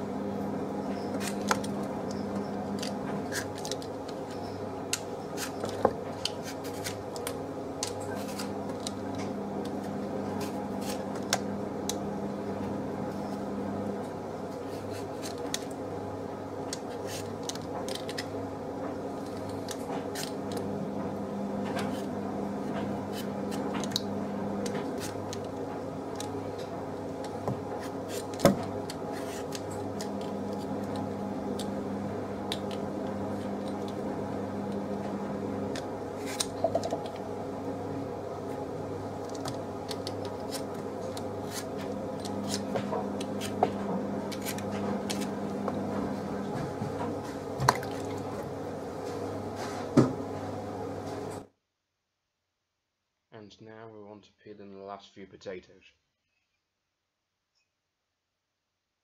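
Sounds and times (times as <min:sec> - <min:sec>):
steady low hum: 0:00.0 - 0:51.5
peeler scraping potato skin: 0:04.9 - 0:09.1, 0:39.2 - 0:43.6.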